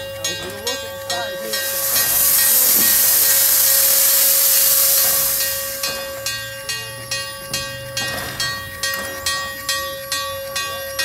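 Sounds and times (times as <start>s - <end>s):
steam hissing from locomotive: 0.7s - 7.7s.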